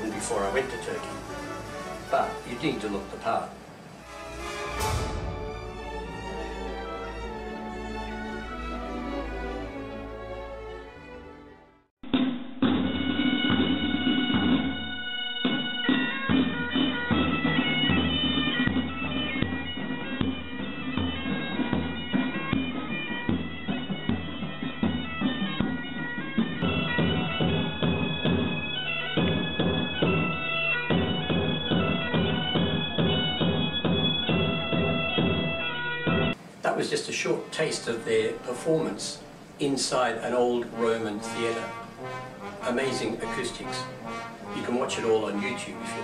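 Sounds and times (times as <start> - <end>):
drum beating: 0.0 - 9.4, 12.0 - 36.6, 37.6 - 46.0
bagpipes playing over drone: 0.1 - 2.6, 4.0 - 11.0, 13.0 - 36.4.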